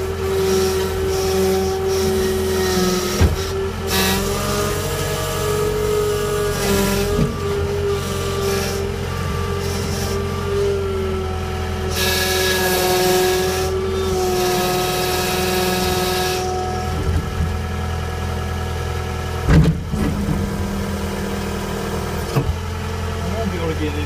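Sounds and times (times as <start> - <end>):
diesel engine running: 0.0 - 24.0
heavy thump: 3.2 - 3.5, 19.4 - 20.5.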